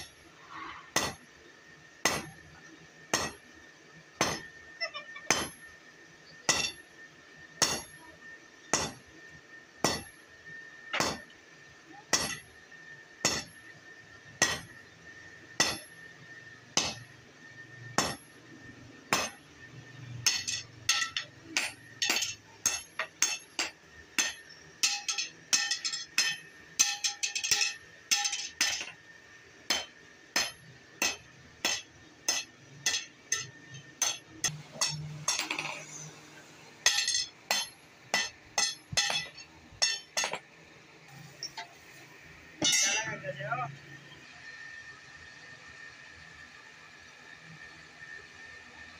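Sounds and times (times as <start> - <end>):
hammer striking steel on anvil: 0.9 - 1.4, 2.0 - 3.5, 4.1 - 4.6, 5.2 - 5.8, 6.4 - 9.1, 9.8 - 10.3, 10.9 - 11.4, 12.0 - 14.8, 15.5 - 17.2, 17.8 - 18.4, 19.0 - 29.0, 29.6 - 36.1, 36.8 - 40.5, 42.6 - 43.3.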